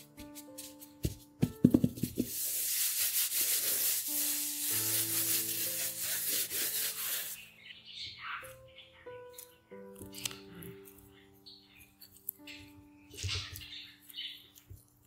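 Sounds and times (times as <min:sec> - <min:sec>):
hands rubbing paper towel: 0:00.0 - 0:07.4
quick taps on paper towel: 0:01.0 - 0:02.4.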